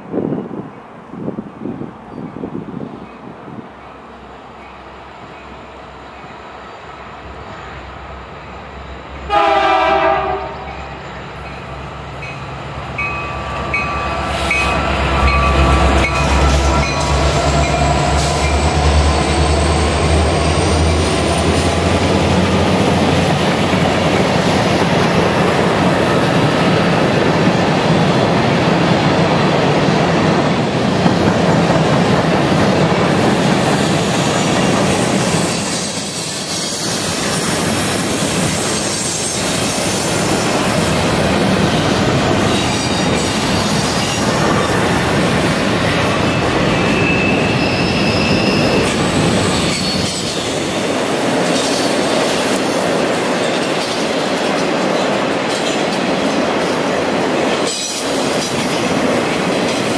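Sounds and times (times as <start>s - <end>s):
train horn blast: 9.3s - 10.9s.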